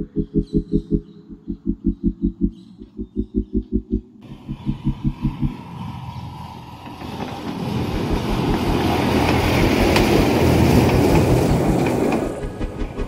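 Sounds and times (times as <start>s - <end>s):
background music with low beat: 0.0s - 5.8s, 7.9s - 10.3s, 12.2s - 13.0s
toy train rumble and wheel clatter: 6.8s - 13.0s.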